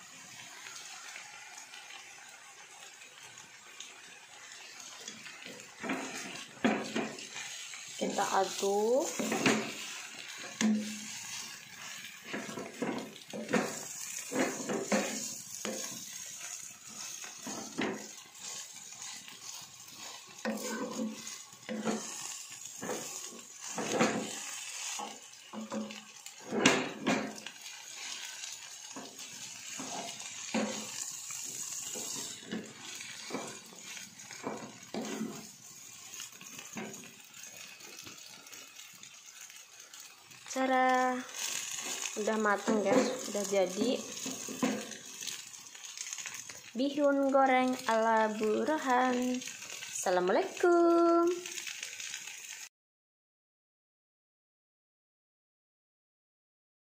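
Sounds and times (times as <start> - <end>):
faint frying sizzle: 0.0 - 52.7
wooden spatula scraping a pan: 4.4 - 46.8.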